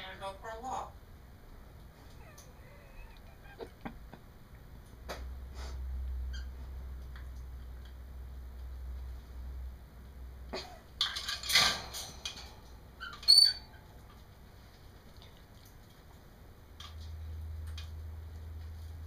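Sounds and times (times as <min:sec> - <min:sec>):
parrot rough calls: 0:02.0 - 0:03.9.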